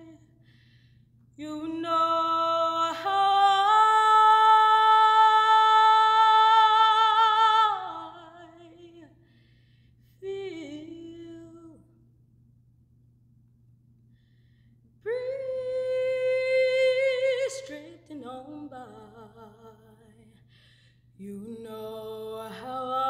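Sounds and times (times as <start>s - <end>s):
woman singing unaccompanied: 0.0s - 0.3s, 1.4s - 9.1s, 10.2s - 11.9s, 15.0s - 20.4s, 21.2s - 23.0s
steady low hum: 0.0s - 23.0s.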